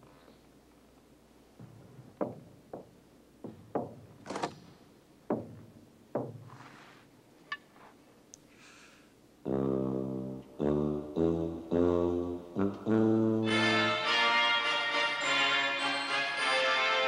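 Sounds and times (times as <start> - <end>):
echoing knocks: 1.6 - 4.6, 5.2 - 6.5.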